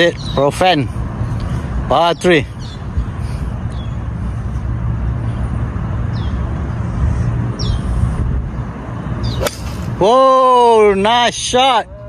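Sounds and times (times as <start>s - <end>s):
low outdoor rumble: 0.0s - 12.0s
bird chirps: 9.2s - 9.6s.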